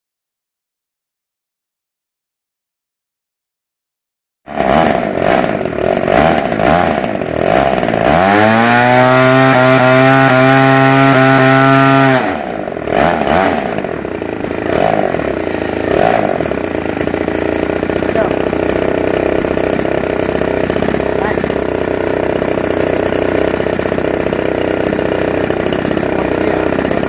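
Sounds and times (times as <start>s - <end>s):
model airplane engine: 4.5s - 27.0s.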